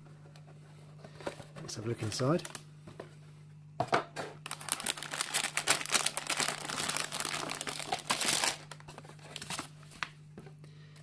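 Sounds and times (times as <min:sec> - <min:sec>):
plastic bags crinkling: 0:04.4 - 0:10.1.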